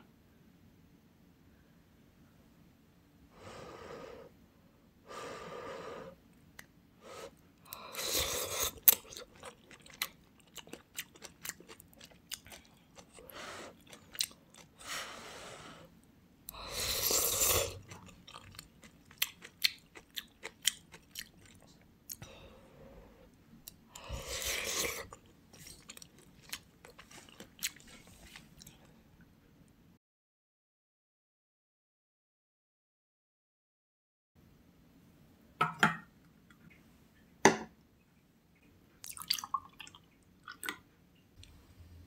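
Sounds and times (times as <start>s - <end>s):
wet chewing: 7.7s - 14.8s, 16.8s - 22.2s, 23.6s - 28.9s.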